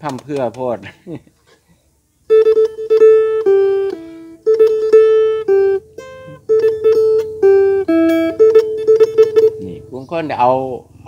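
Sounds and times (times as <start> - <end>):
plucked lute melody: 2.3 - 9.9.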